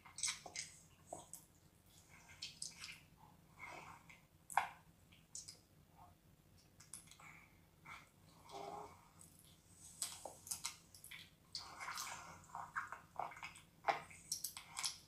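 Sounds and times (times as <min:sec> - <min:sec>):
wet mouth eating sounds: 0:00.0 - 0:01.5, 0:09.2 - 0:15.0.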